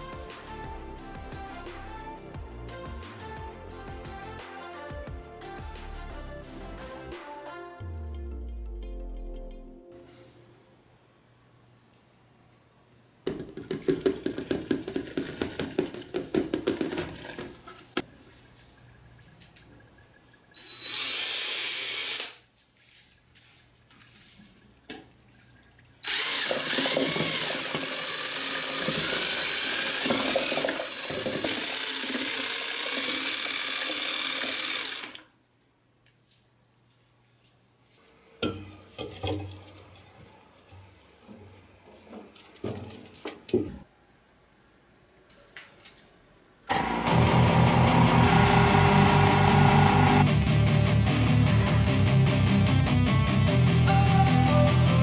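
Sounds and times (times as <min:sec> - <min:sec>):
powder pouring into plastic jug: 0:13.3 - 0:17.6
power drill mixing slurry: 0:20.6 - 0:22.4, 0:26.0 - 0:35.3, 0:46.7 - 0:50.2.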